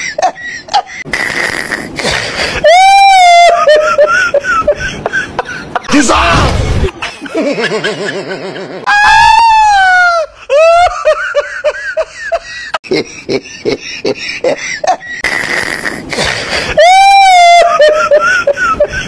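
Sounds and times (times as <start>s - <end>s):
long falling whoop: 8.9s - 10.2s.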